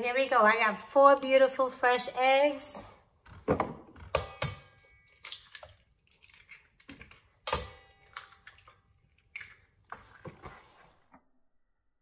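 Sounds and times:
eggs cracked against metal bowl: 4.2s - 9.6s.

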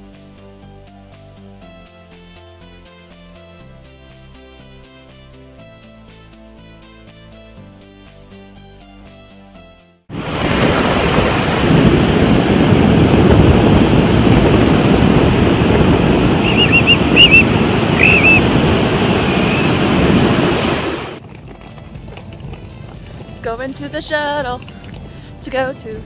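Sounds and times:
ocean surf breaking on beach: 10.1s - 21.2s
wind rushing over microphone: 10.1s - 26.0s
high bird chirps: 16.4s - 18.4s, 19.3s - 19.8s.

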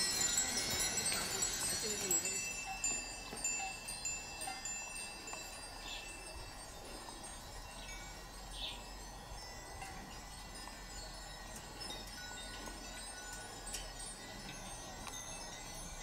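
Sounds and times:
small bells tinkling: 0.0s - 16.0s.

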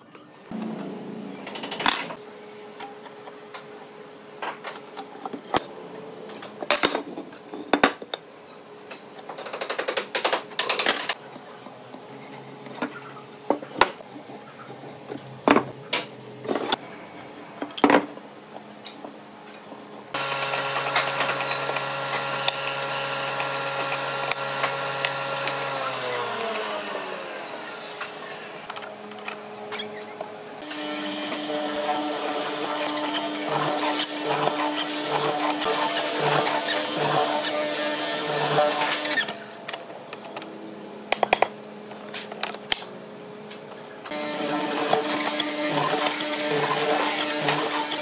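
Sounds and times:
drilling machine motor running: 20.2s - 28.7s, 44.1s - 48.0s.

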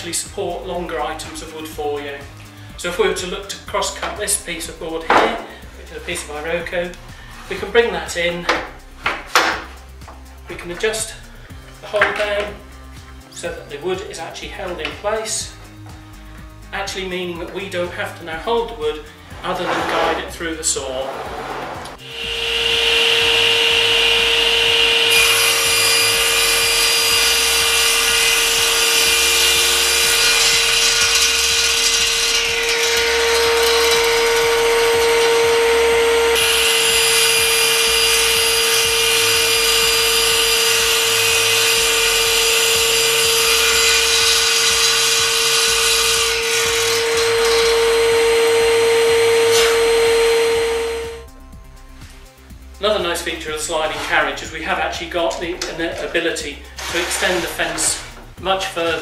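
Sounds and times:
table saw whining: 0.2s - 15.6s, 18.5s - 51.4s, 52.9s - 59.0s
saw rasping through wood: 18.5s - 51.3s, 53.0s - 59.0s.

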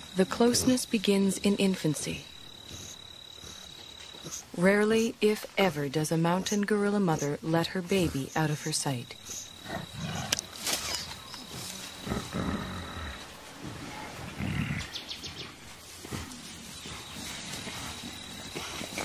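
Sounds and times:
high insect whine: 0.0s - 19.0s
rustling vegetation: 0.0s - 19.0s
gorillas grunting: 9.3s - 19.0s.

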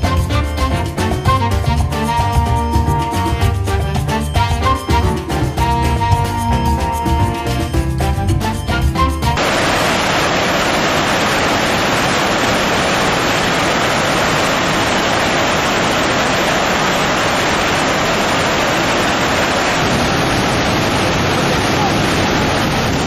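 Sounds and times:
background music: 0.0s - 9.4s
waterfall rushing: 9.3s - 23.0s.

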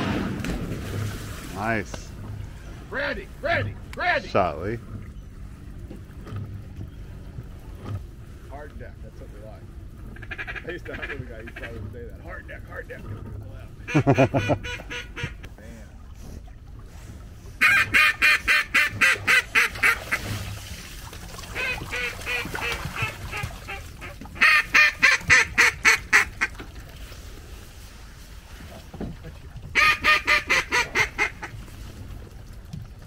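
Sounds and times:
duck call quacks: 10.2s - 11.7s, 13.9s - 15.4s, 17.6s - 20.3s, 21.6s - 26.6s, 29.8s - 31.5s.

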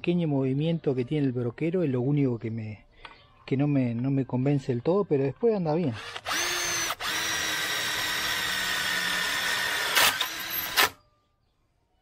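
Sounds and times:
cordless drill motor whining: 6.0s - 11.0s.

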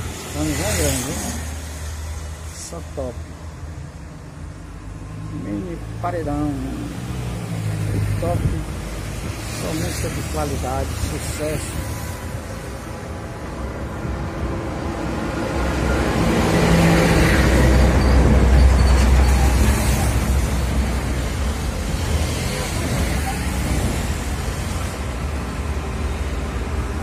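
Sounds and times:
vehicle passing: 0.0s - 3.2s.

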